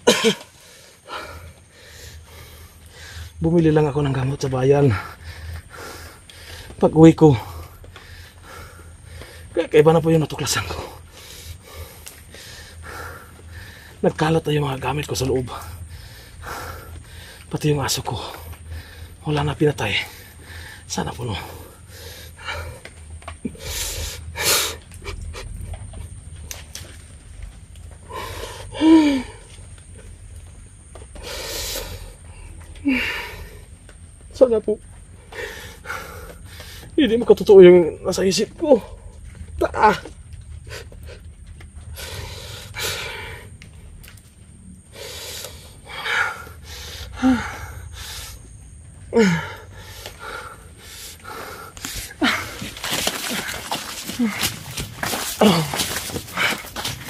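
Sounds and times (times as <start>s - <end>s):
man sobbing: 28.6s - 29.5s, 49.1s - 49.7s, 52.1s - 52.8s.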